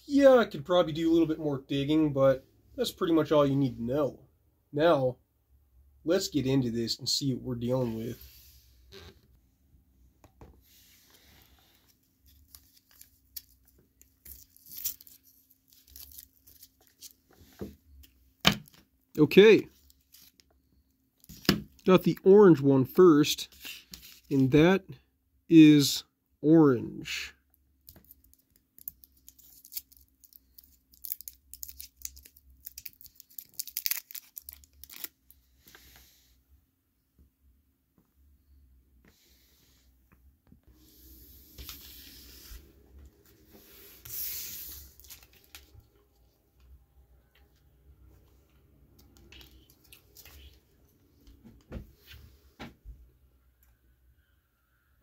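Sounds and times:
candy wrapper crinkling and tearing: 0:12.3 - 0:17.2, 0:27.8 - 0:35.4.

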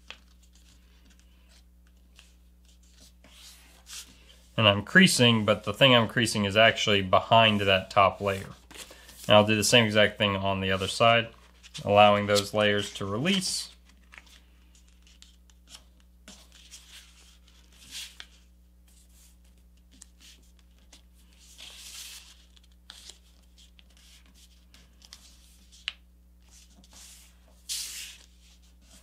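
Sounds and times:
paper rustling as folded: 0:10.7 - 0:29.0.

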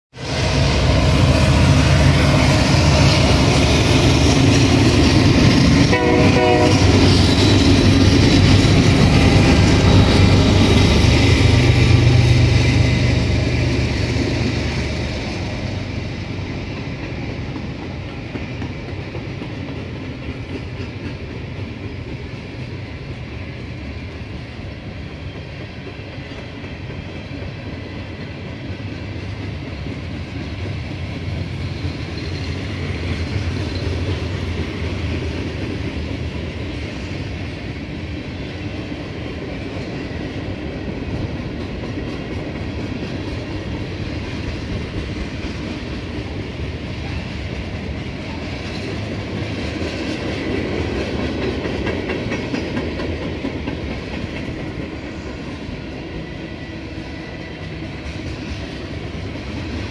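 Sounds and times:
diesel locomotive engines rumbling: 0:00.2 - 0:59.9
locomotive horn: 0:05.7 - 0:07.3.

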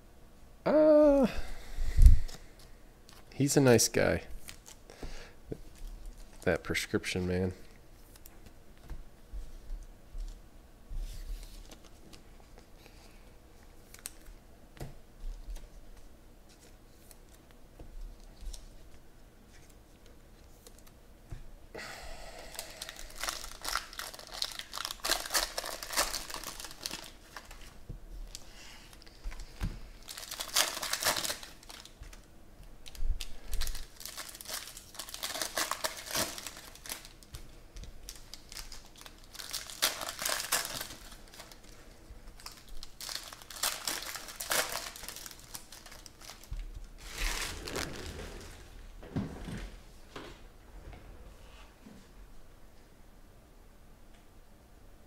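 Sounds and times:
foil wrappers crinkling and tearing: 0:13.8 - 0:14.4, 0:22.5 - 0:48.6.

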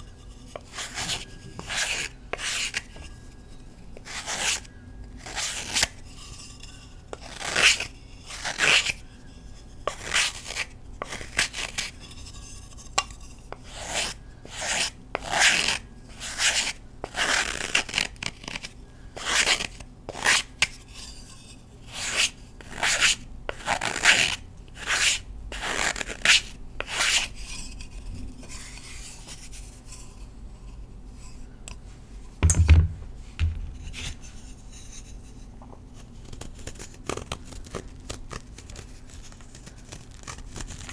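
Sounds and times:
knife scraping chalk block: 0:00.0 - 0:03.4, 0:04.0 - 0:31.4
dull thump: 0:32.4 - 0:33.8.

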